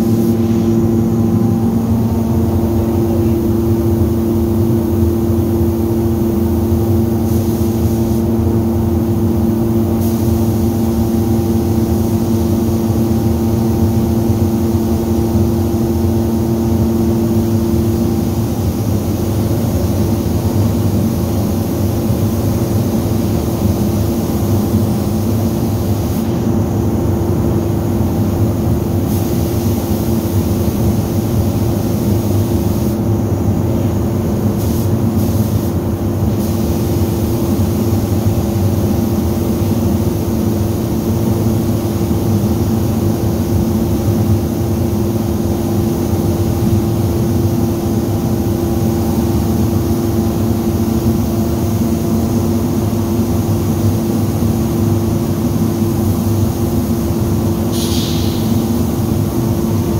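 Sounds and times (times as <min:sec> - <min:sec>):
spray gun hissing: 0:00.0 - 0:08.5, 0:09.7 - 0:13.2, 0:21.2 - 0:26.4, 0:29.0 - 0:33.0, 0:34.5 - 0:42.6, 0:57.6 - 0:59.6
loud steady mechanical hum: 0:00.0 - 0:59.9.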